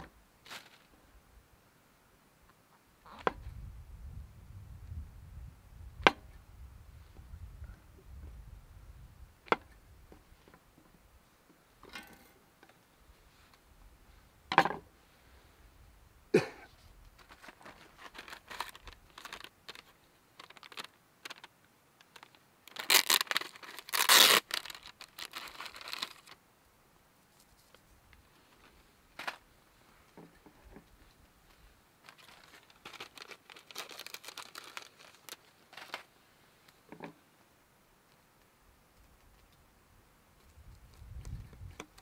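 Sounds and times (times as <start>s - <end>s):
packaging tearing and crinkling: 17.2s - 21.5s, 22.1s - 26.4s, 32.0s - 36.1s.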